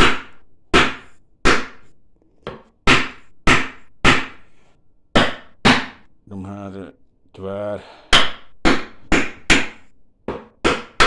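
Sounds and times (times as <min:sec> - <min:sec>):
hammer striking wooden chair: 0:02.4 - 0:04.4, 0:08.1 - 0:11.0.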